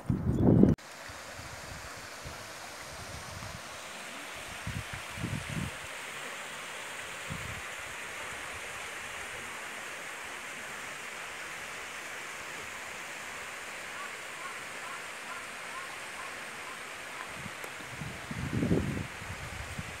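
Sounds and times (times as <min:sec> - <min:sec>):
water rushing over weir: 0:00.8 - 0:20.0.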